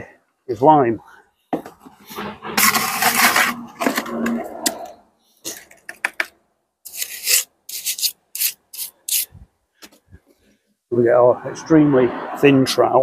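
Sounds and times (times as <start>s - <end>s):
trowel scraping mortar: 2.0s - 6.1s, 6.9s - 9.4s.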